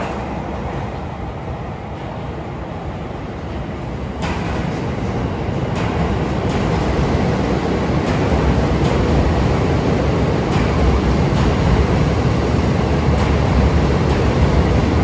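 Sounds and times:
train wheels rumbling on rails: 0.0 - 15.0
wheels clacking over rail joints: 3.7 - 15.0.

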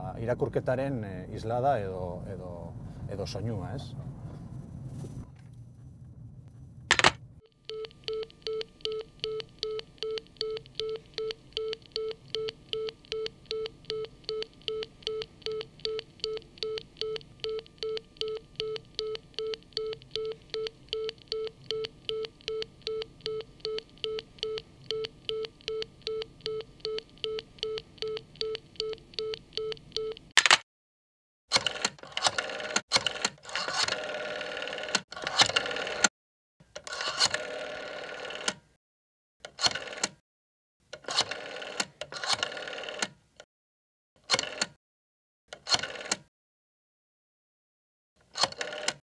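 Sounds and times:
telephone handset clunk: 6.9 - 7.2
telephone busy tone beeping: 7.4 - 30.2.

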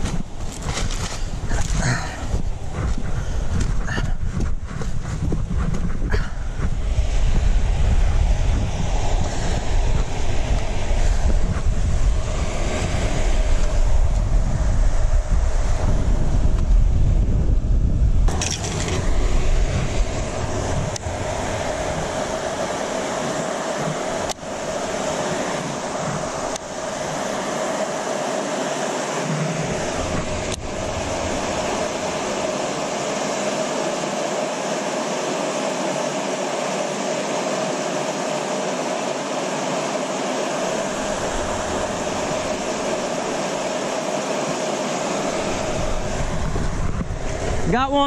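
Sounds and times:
water rushing through spillway: 18.3 - 48.0.

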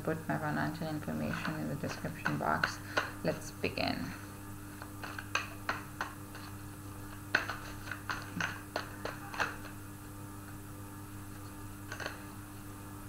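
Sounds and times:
faint electrical hum: 0.0 - 13.0
cards being shuffled: 4.8 - 9.8.

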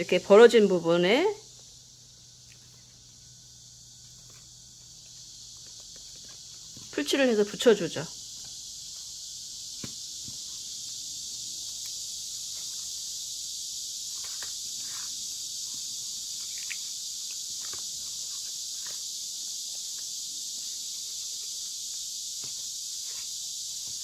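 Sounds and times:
steady high-pitched hiss: 0.0 - 24.0.

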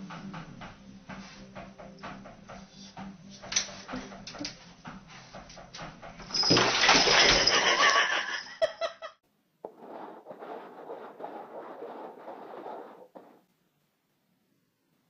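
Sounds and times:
cups scraping on tile floor: 6.2 - 8.2, 9.6 - 13.4
water gushing into bathtub: 6.2 - 8.3, 9.7 - 13.4.

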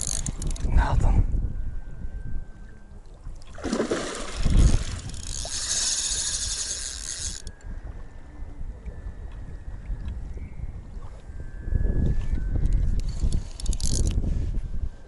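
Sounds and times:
fishing reel drag buzzing: 0.0 - 0.7, 4.4 - 7.8, 11.4 - 15.0
low wind rumble: 0.0 - 15.0.

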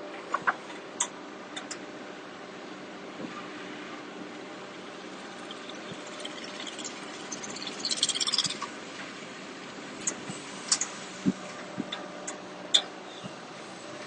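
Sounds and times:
rattle of high clicks: 5.4 - 8.7.

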